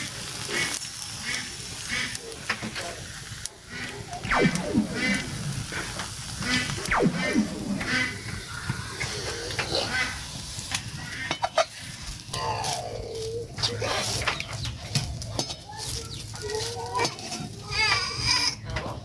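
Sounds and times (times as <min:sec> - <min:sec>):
dough sizzling in oil: 0:00.0 - 0:06.9, 0:07.9 - 0:18.7.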